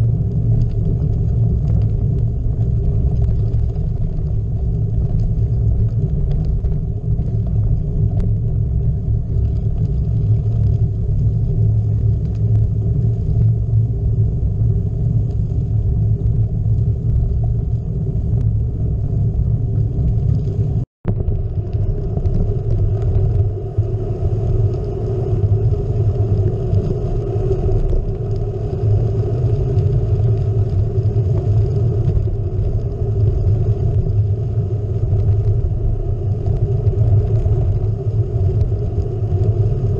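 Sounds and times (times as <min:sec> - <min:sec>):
bike tyres rolling on dirt road: 0:00.0 - 0:39.9
wind buffeting microphone: 0:00.0 - 0:39.9.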